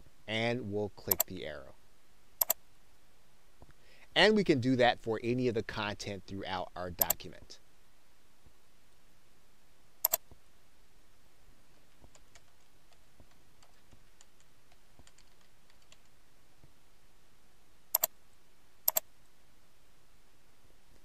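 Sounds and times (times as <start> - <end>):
computer mouse clicks: 1.1 - 1.3, 2.4 - 2.6, 7.0 - 7.2, 10.0 - 10.3, 17.9 - 18.1, 18.9 - 19.1.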